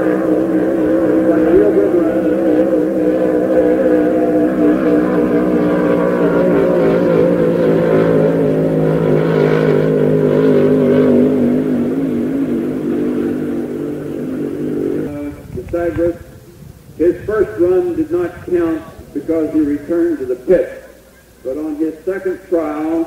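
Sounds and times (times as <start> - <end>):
racing boat engine running hard: 0.0 - 23.0.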